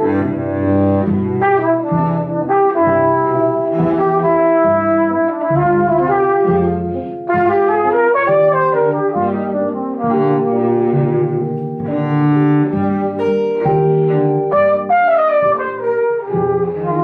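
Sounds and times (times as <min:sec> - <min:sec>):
brass horn melody: 0:00.0 - 0:17.0
cello: 0:00.0 - 0:17.0
plucked double bass: 0:00.0 - 0:17.0.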